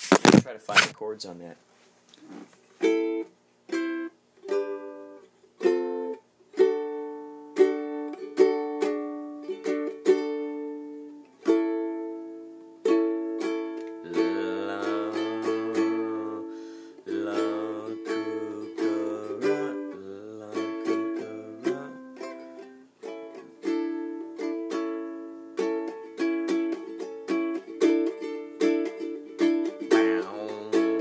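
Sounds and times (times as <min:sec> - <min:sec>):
plucked string instrument strumming: 0:02.8 - 0:31.0.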